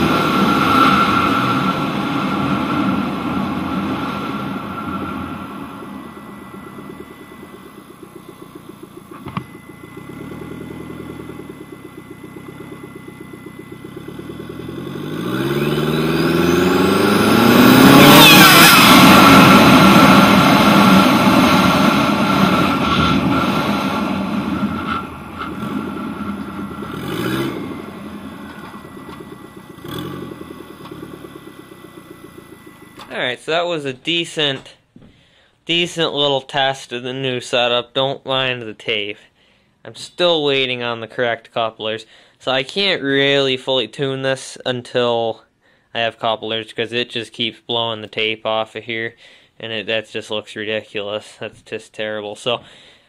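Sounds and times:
turbo whistle: 0.0s - 33.1s
lawn tractor engine revving: 0.0s - 33.4s.

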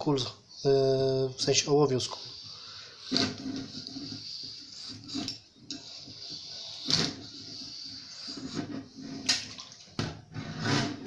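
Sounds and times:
brush scrubbing in barrel: 1.4s - 11.0s
water sloshing: 8.9s - 10.0s.

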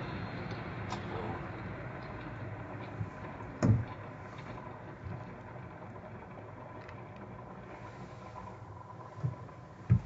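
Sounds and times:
car cabin hum: 9.1s - 10.0s.

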